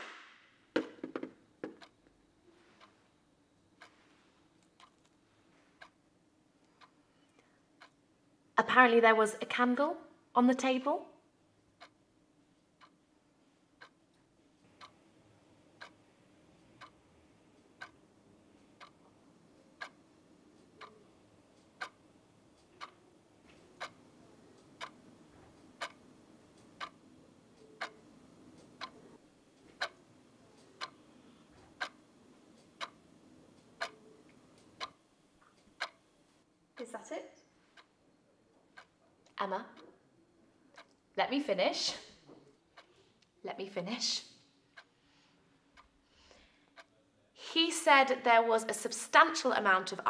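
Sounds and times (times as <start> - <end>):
faint low room hum: 0.0 - 50.0
clock ticking: 0.8 - 4.0, 4.6 - 7.0, 7.7 - 8.8, 11.6 - 36.2, 37.6 - 38.0, 38.7 - 42.0, 46.7 - 47.0.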